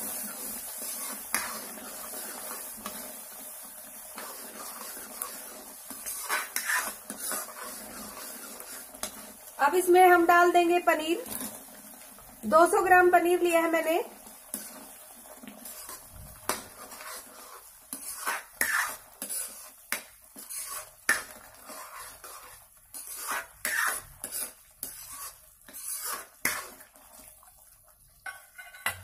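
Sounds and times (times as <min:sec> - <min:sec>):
ladle clinking and scraping a pan: 0:04.1 - 0:09.3, 0:15.6 - 0:27.0, 0:28.2 - 0:29.0.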